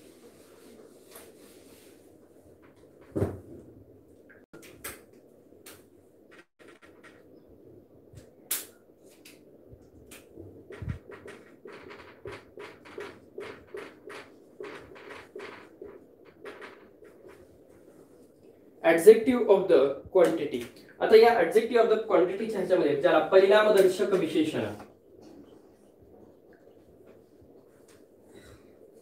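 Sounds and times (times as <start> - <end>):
marker pen writing on whiteboard: 10.7 - 18.3.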